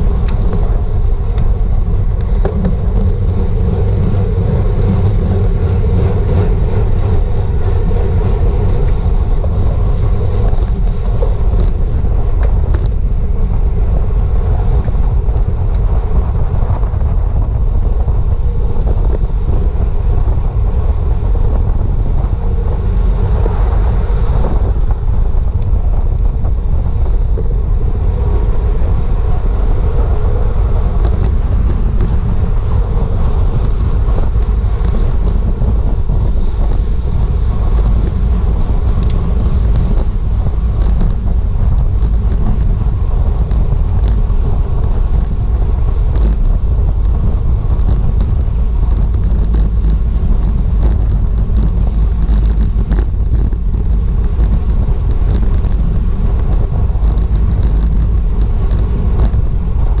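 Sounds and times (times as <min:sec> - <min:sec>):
bicycle rattles and clicks: 0:00.0 - 1:00.0
wind rushing over microphone: 0:00.0 - 1:00.0.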